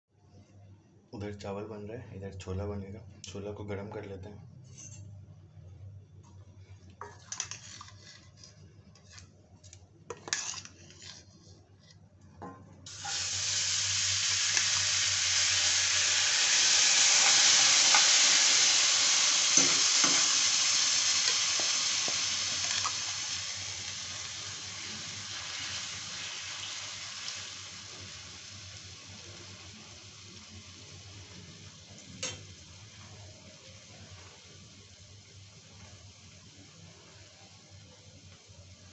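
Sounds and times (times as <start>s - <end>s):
ladle stirring: 6.7s - 12.0s
curry sizzling in frying pan: 10.1s - 11.3s, 12.9s - 38.9s.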